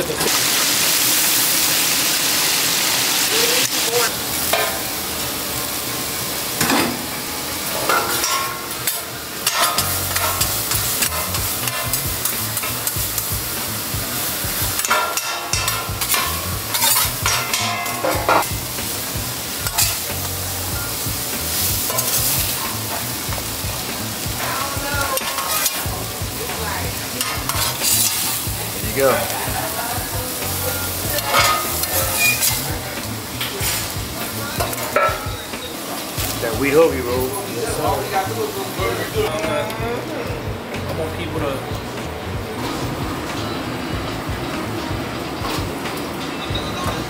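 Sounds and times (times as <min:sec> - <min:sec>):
food sizzling on a griddle: 0:00.0 - 0:47.0
metal spatula scraping steel: 0:07.9 - 0:13.4, 0:14.8 - 0:18.6, 0:21.6 - 0:23.1, 0:24.4 - 0:25.9, 0:27.1 - 0:28.5, 0:31.0 - 0:32.8.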